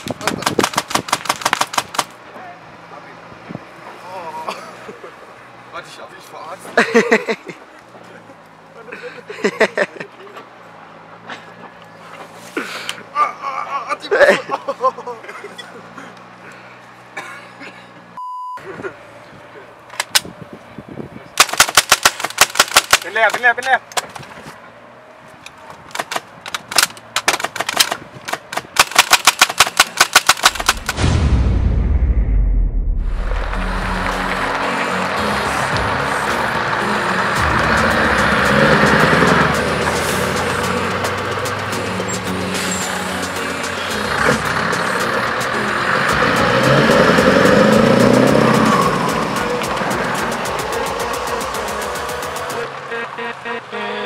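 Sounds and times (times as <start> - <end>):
airsoft rifle shots: 0.0 - 2.2, 21.4 - 23.6, 25.9 - 31.2
truck diesel engine passing: 1.6 - 18.2, 33.0 - 54.0
low-pitched music: 30.6 - 52.8.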